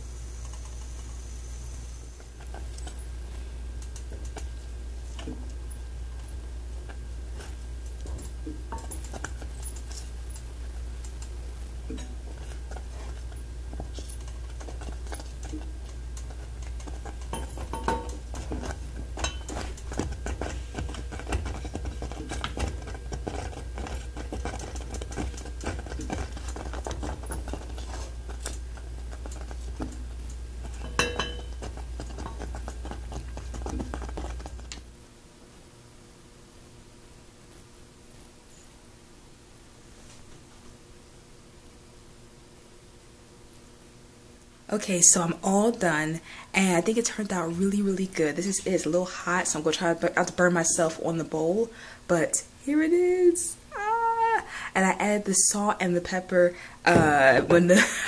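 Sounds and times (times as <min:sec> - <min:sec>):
wooden spoon scraping a saucepan: 0:11.9 - 0:30.0.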